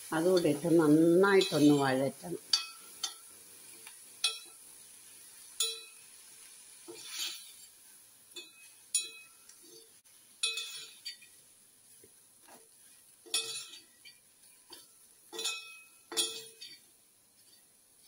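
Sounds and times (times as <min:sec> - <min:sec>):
metal spoon scraping metal pot: 0:01.4 - 0:02.0, 0:06.9 - 0:07.7, 0:08.4 - 0:11.3, 0:13.3 - 0:17.6
spoon clinking against pot: 0:02.5 - 0:03.3, 0:04.2 - 0:04.6, 0:05.6 - 0:06.0, 0:08.3 - 0:11.4, 0:13.2 - 0:17.6.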